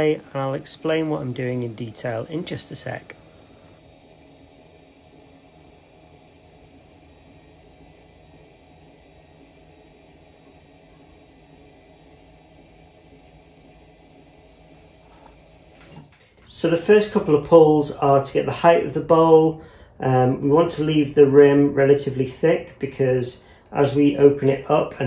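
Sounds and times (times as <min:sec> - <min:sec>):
low motor hum: 0:00.0 - 0:15.9
pottery wheel whine: 0:00.0 - 0:25.0.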